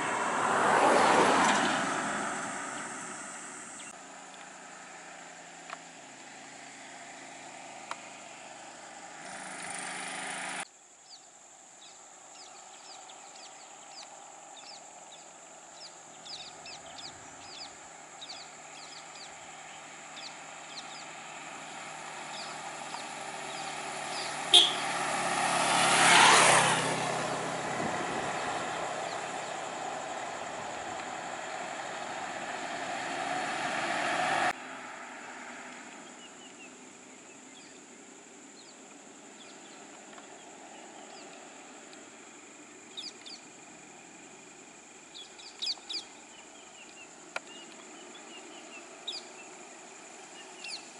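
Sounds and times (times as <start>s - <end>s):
diesel lorry engine approaching: 0.0s - 10.7s, 14.2s - 50.9s
vehicle engines running slowly: 0.0s - 10.7s, 11.8s - 50.9s
faint traffic hum: 0.0s - 50.9s
bird chirping: 11.0s - 24.9s, 42.9s - 43.5s, 45.1s - 50.9s.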